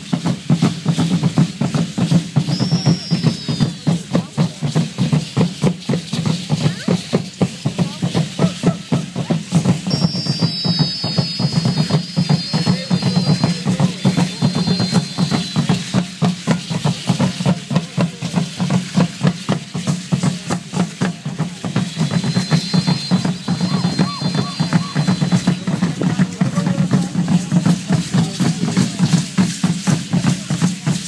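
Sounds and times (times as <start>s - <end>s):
drum beating fast rhythm: 0.0s - 31.0s
seed-pod ankle rattles shaking: 0.0s - 31.0s
thin high whistling tone: 2.1s - 7.4s, 8.4s - 18.7s, 21.3s - 29.2s.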